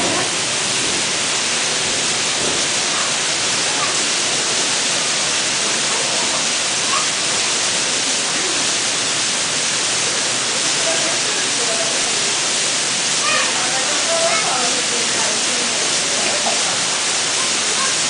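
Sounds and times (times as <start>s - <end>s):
running water hiss: 0.0s - 18.0s.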